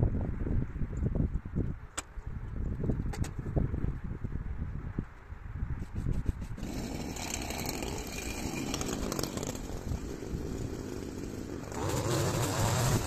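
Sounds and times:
hedge trimmer engine running: 6.6 - 13.0.

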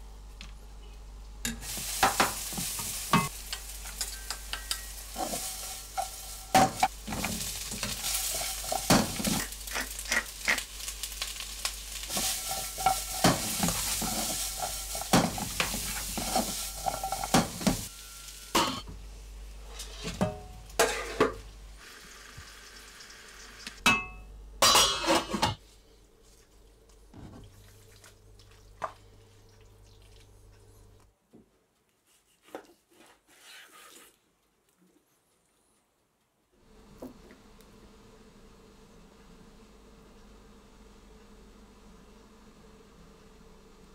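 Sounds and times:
onions sizzling in a frying pan: 1.4 - 23.9
spatula scraping a pan: 1.7 - 10.7, 12.1 - 17.9, 20.8 - 21.4, 32.4 - 34.2.

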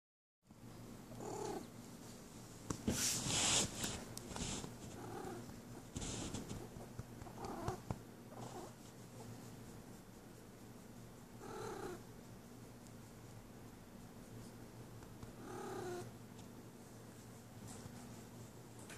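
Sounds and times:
cat purring: 1.1 - 1.7, 3.3 - 9.4, 11.3 - 12.1, 14.3 - 16.1.

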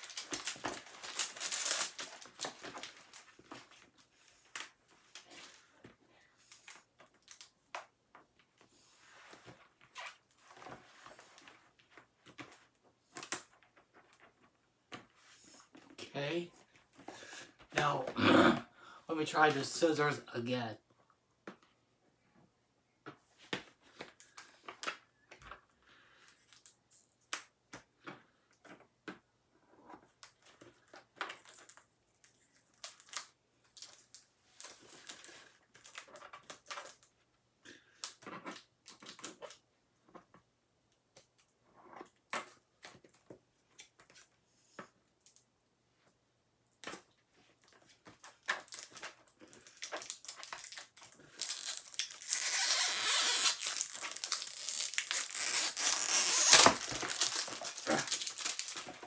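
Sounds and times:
plastic crackling: 0.0 - 8.6, 46.7 - 59.0.

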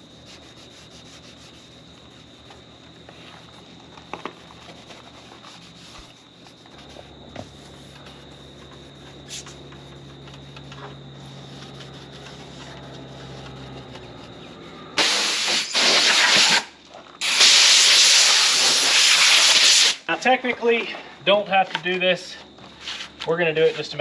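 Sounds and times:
pad rubbing painted trim: 0.0 - 15.0, 22.7 - 24.0
compressed air blow gun hissing: 15.0 - 16.6, 17.2 - 20.1.

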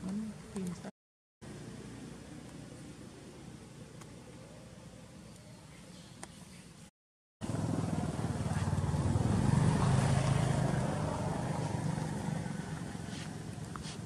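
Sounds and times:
vehicle engine running: 7.4 - 14.0.

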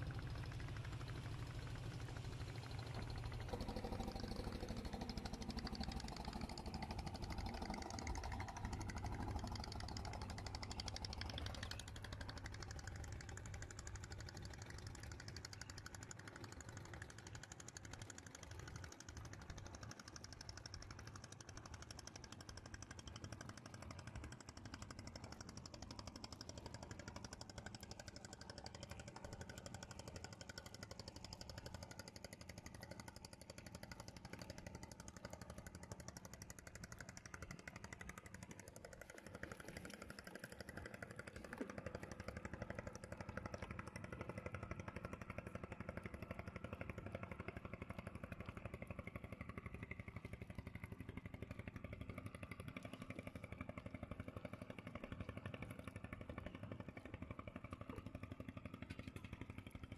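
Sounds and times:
small engine knocking: 0.0 - 59.9.

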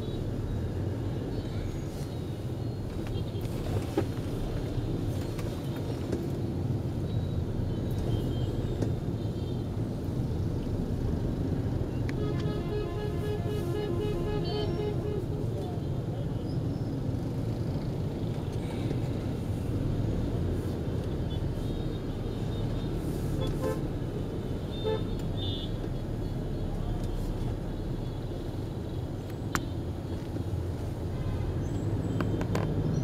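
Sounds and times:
traffic rumble: 0.0 - 33.0
car horn beeps: 7.1 - 9.7, 12.1 - 16.0, 21.2 - 23.9, 24.6 - 26.1.

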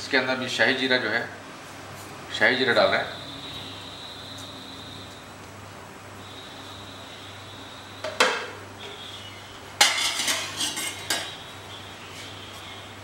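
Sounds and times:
metal spatula clinking on pot: 9.8 - 11.4.

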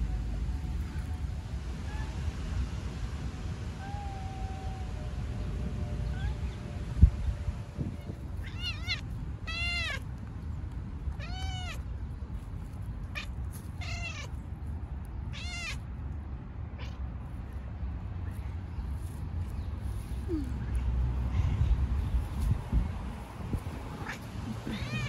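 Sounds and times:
low background rumble: 0.0 - 25.0
cat meowing: 8.0 - 10.0, 11.2 - 11.8, 13.1 - 14.3, 15.3 - 15.8, 23.9 - 25.0.

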